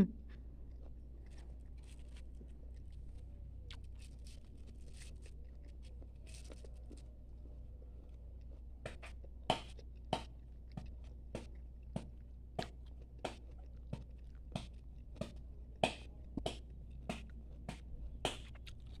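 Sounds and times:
knife chopping coconut: 8.8 - 10.3, 11.3 - 18.5.

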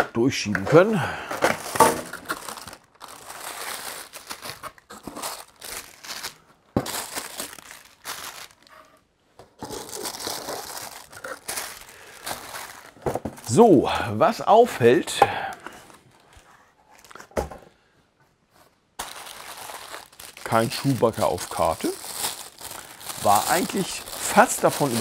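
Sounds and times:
paper wrapping crinkling: 1.4 - 9.0, 9.6 - 13.7, 15.6 - 17.3, 19.0 - 25.0.

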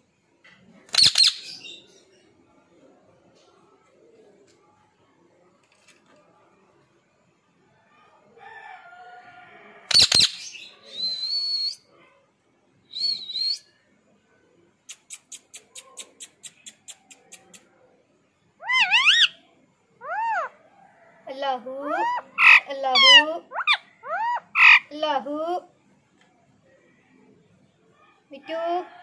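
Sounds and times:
parakeet squawks and screeches: 0.9 - 1.7, 9.9 - 10.6, 18.6 - 19.4, 20.0 - 20.6, 21.9 - 24.9.

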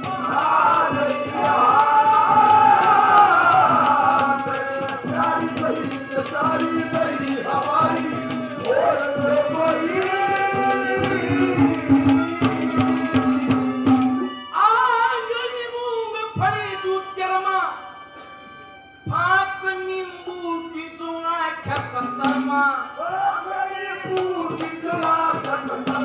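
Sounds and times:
drum strokes: 0.0 - 14.5
man singing long high notes: 0.0 - 17.1
harmonium chords: 0.0 - 26.0.

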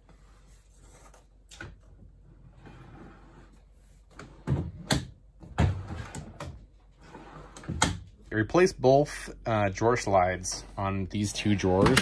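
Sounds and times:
drawer sliding: 2.2 - 8.0.

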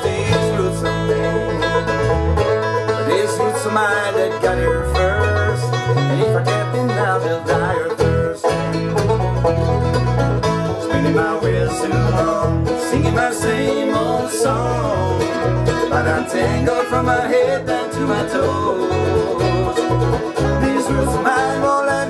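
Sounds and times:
men singing: 0.0 - 2.0, 3.0 - 8.5, 10.7 - 22.0
banjo: 0.0 - 22.0
bass line: 0.0 - 22.0
guitar: 0.0 - 22.0
mandolin: 0.0 - 22.0.

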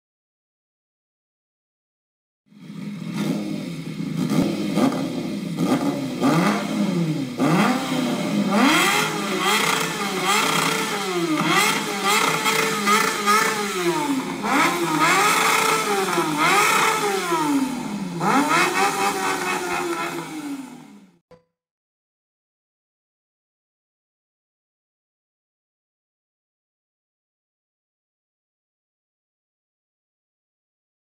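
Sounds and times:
motorcycle engine revving: 2.5 - 21.2.

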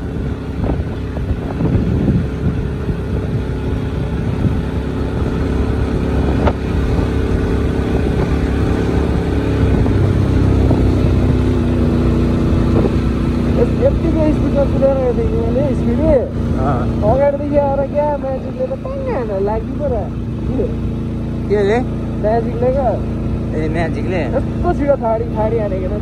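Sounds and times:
wind buffeting microphone: 0.0 - 18.2
motorcycle engine running: 0.0 - 26.0.

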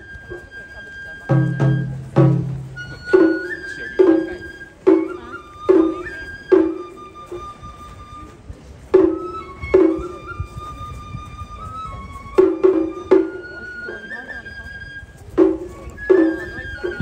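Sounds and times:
bamboo flute melody: 0.0 - 17.0
taiko drum strikes: 1.3 - 7.0, 8.9 - 10.2, 12.4 - 13.5, 15.4 - 17.0.

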